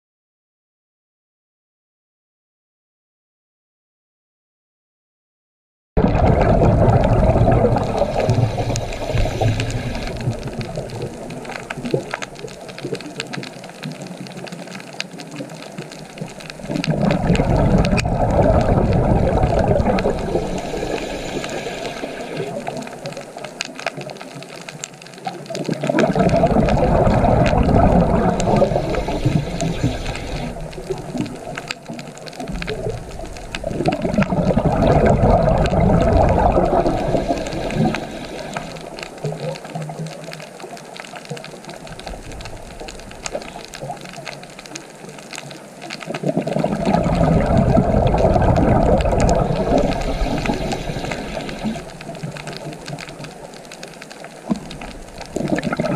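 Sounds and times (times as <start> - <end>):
rushing water surges: 6.0 - 55.9
deep rumble: 16.6 - 22.2.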